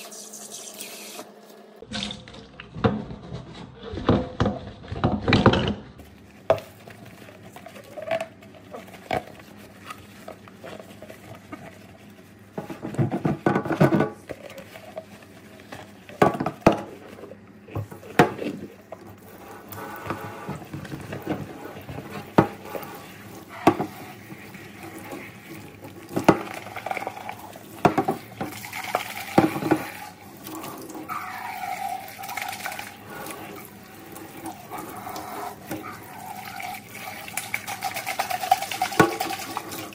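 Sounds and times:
tap running water: 0:00.0 - 0:03.0, 0:12.5 - 0:39.9
scrubbing and sloshing: 0:05.8 - 0:39.9.

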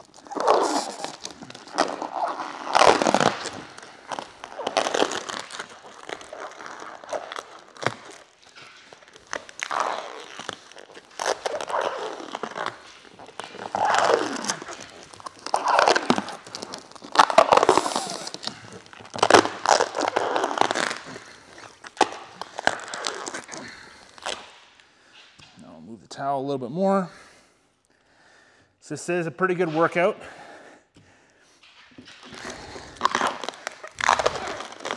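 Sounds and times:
film stretching squeal: 0:00.0 - 0:24.4, 0:32.3 - 0:34.9
film peeling crackling: 0:00.0 - 0:24.7, 0:32.0 - 0:34.9.

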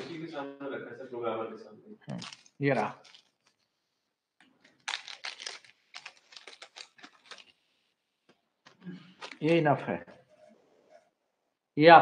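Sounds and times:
small hard objects clicking: 0:02.1 - 0:03.6, 0:04.6 - 0:07.5.

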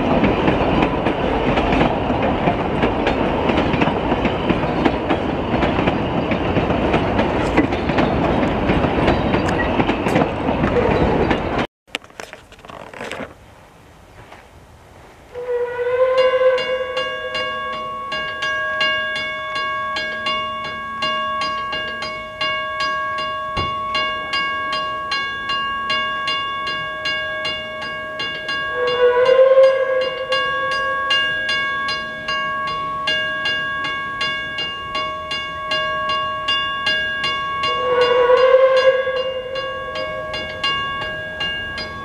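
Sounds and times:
level crossing warning bell: 0:00.0 - 0:11.6, 0:16.0 - 0:42.0
loud hooting tone: 0:15.3 - 0:18.1, 0:28.7 - 0:31.4, 0:37.6 - 0:40.7.

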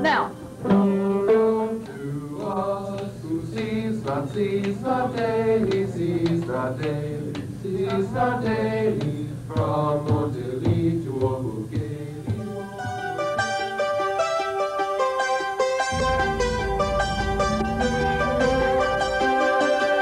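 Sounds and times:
steady low hum: 0:00.0 - 0:14.5, 0:15.8 - 0:20.0
small vocal ensemble singing: 0:00.6 - 0:13.4.

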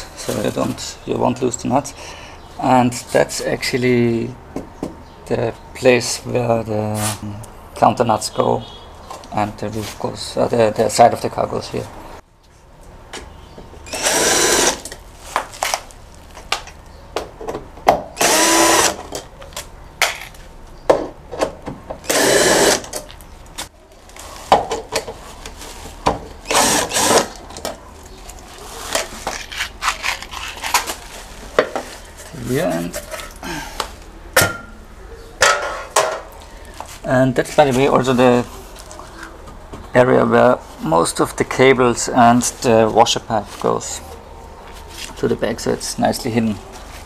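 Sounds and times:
cordless drill running: 0:13.9 - 0:14.9, 0:18.2 - 0:19.0, 0:22.0 - 0:22.9, 0:26.4 - 0:27.4.

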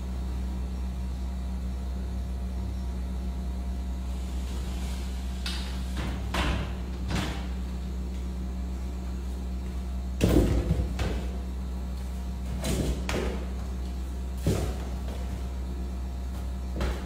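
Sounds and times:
steady low hum: 0:00.0 - 0:17.0
football thudding on tiles: 0:10.2 - 0:11.4, 0:14.4 - 0:15.4, 0:16.8 - 0:17.0.

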